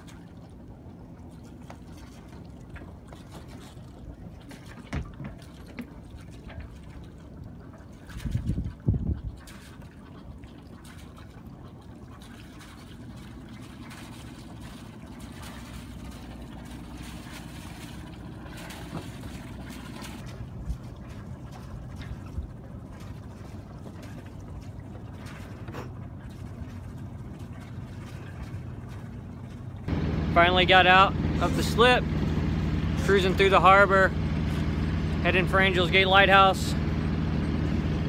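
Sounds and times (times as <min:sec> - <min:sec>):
boat engine low hum: 0:00.0 - 0:38.0
wet exhaust splashing: 0:00.0 - 0:38.0.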